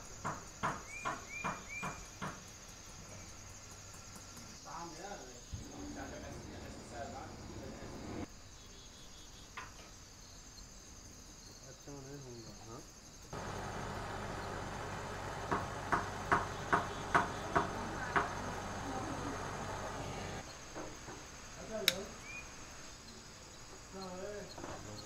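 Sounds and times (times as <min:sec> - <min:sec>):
torch flame hissing: 0:05.5 - 0:08.3
sharp clicks: 0:21.8 - 0:22.0.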